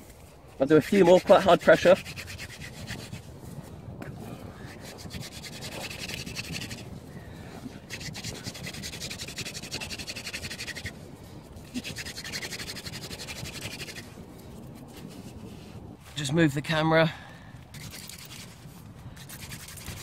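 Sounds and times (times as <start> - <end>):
hand drill rasping into wood: 4.8 - 6.8.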